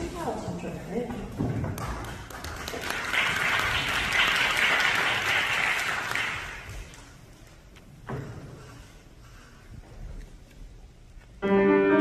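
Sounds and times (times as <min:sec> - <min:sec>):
audience applauding: 0:01.8 - 0:07.0.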